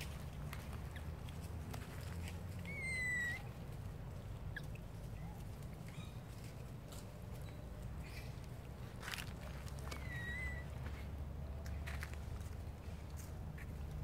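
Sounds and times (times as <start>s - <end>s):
baby monkey crying: 2.6s - 3.6s, 9.9s - 10.7s.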